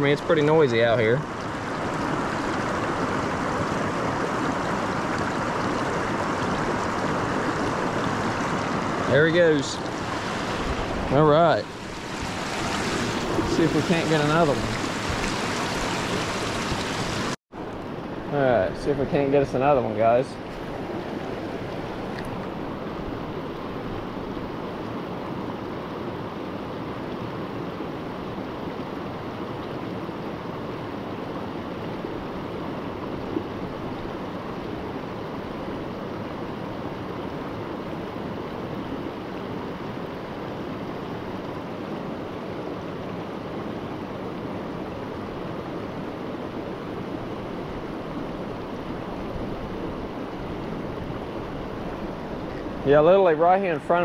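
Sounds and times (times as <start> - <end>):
river rapids rushing over rocks: 0.4 - 17.4.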